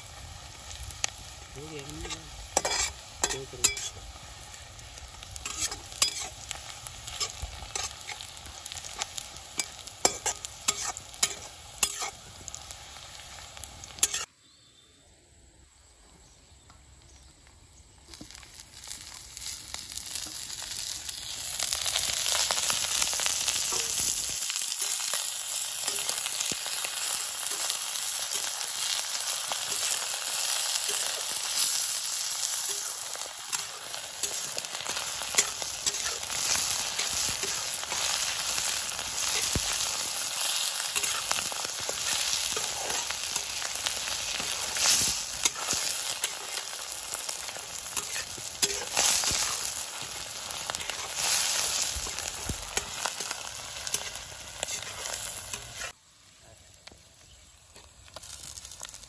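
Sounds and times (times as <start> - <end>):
loud steady sizzle: 0.0 - 14.3, 16.7 - 59.0
onions frying in oil: 0.0 - 14.3, 16.9 - 59.0
metal spatula scraping in wok: 2.0 - 4.0, 5.4 - 6.5, 7.1 - 8.3, 8.9 - 12.2, 14.0 - 14.3, 32.7 - 39.8, 40.4 - 46.9, 47.8 - 55.9.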